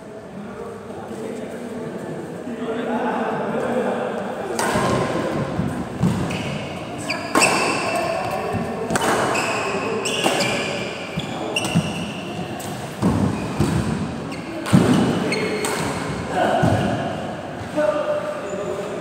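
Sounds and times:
racket hitting shuttlecock: 4.6s - 17.1s.

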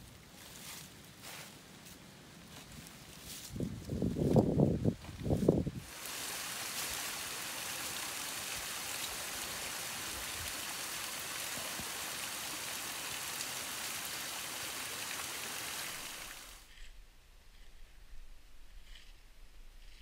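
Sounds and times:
stream rushing over rocks: 5.8s - 16.7s.

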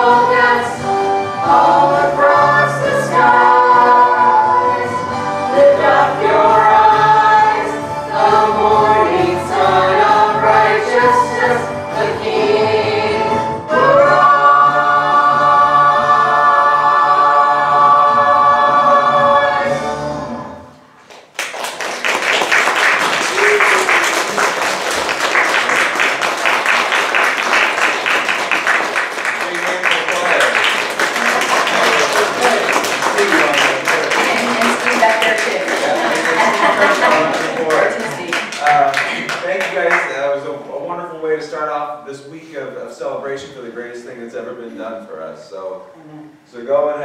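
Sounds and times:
church choir singing: 0.0s - 20.7s, 29.6s - 38.2s
audience applause: 21.1s - 40.2s.

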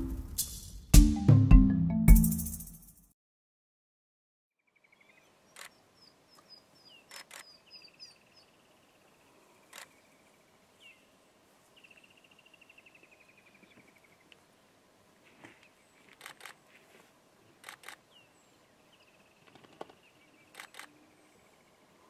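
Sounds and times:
faint birdsong chirps and trills: 4.6s - 16.7s, 18.0s - 22.0s
sharp clicks: 7.1s - 7.5s, 9.7s - 10.0s, 16.1s - 16.6s, 17.6s - 18.0s, 19.5s - 20.9s.

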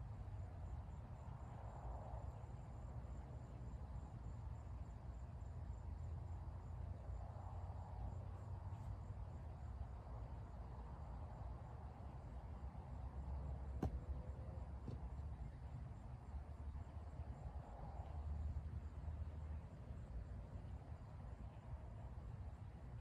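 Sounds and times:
crickets chirping: 0.0s - 23.0s
low outdoor rumble: 0.0s - 23.0s.

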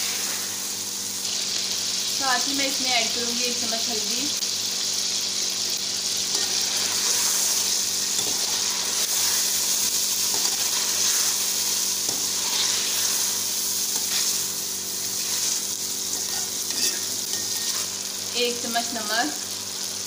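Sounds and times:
food sizzling in oil: 0.0s - 20.0s
spoon stirring and scraping: 6.3s - 18.0s.

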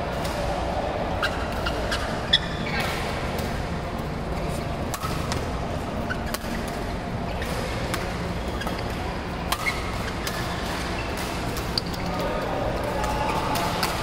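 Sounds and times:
din of play in a sports hall: 0.0s - 14.0s
court shoes squeaking: 1.2s - 14.0s
racquets striking shuttlecock: 6.3s - 12.0s, 12.8s - 14.0s.

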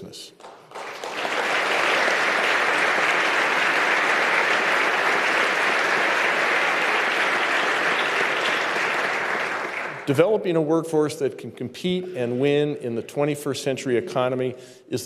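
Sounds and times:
audience applause: 0.4s - 10.2s.

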